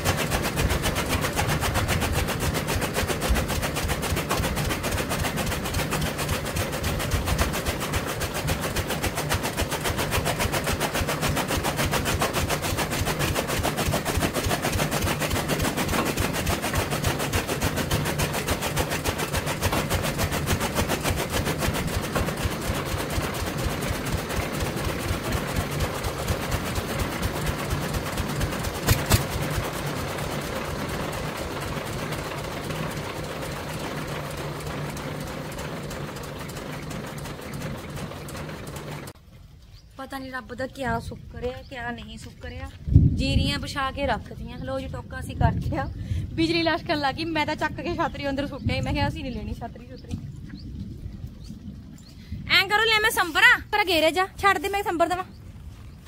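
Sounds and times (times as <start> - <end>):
chaff cutter chopping fodder: 0.0 - 39.2.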